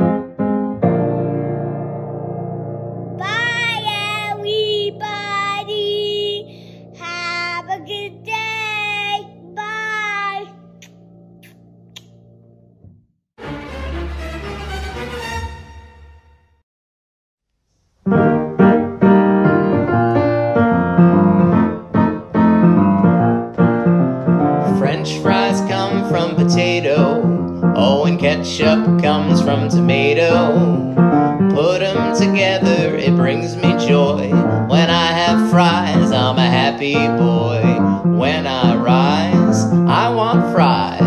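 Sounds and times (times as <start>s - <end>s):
piano chords with steady beat: 18.1s - 41.0s.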